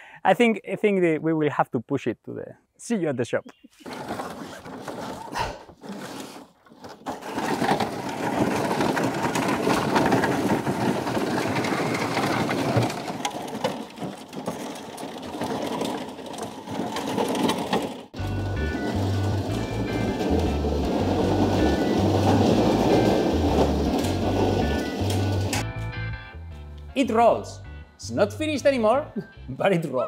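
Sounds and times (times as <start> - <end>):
plastic track dragging over ground: 3.7 - 25.6
wheels scraping and crunching on gravel: 3.7 - 25.6.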